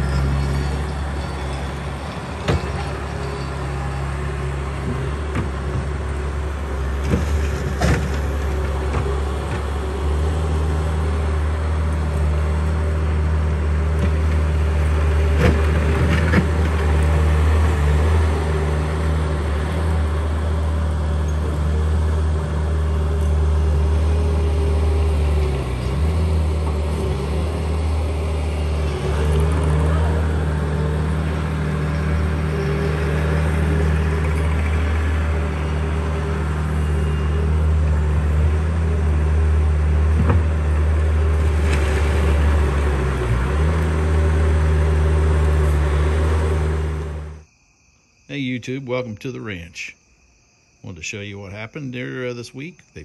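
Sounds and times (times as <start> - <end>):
diesel engine droning: 0.0 - 47.4.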